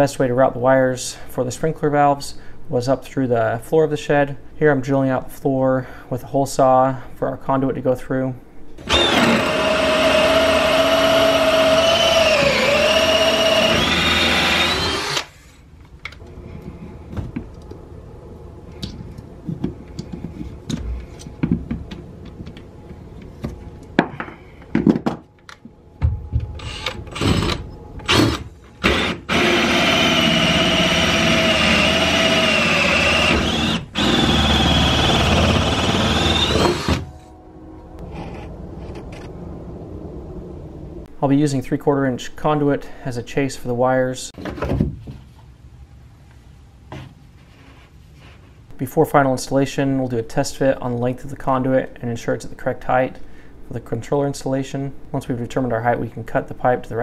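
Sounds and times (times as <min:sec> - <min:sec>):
drill motor whining under load: 0:08.8 - 0:15.6, 0:26.6 - 0:37.3.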